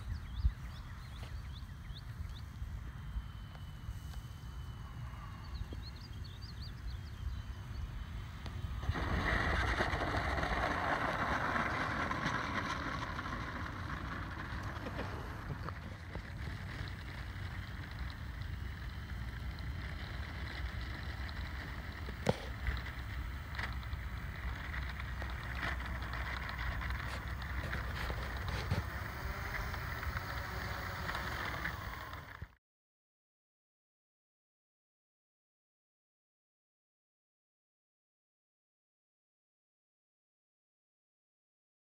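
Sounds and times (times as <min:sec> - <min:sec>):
wind buffeting microphone: 0:00.0 - 0:03.9, 0:04.5 - 0:32.5
model plane rolling on asphalt: 0:00.0 - 0:32.6.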